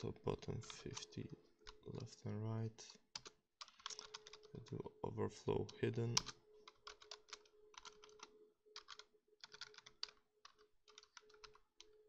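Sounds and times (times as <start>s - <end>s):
low steady hum: 0.0s - 3.2s, 3.8s - 6.7s
typing on a keyboard: 3.2s - 4.8s, 5.6s - 12.0s.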